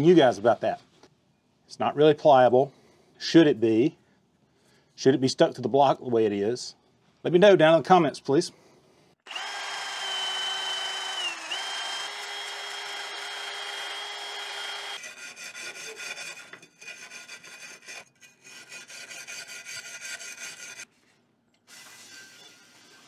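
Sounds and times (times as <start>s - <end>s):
cordless drill running: 9.2s - 15.0s
brush scrubbing metal plate: 15.0s - 20.9s.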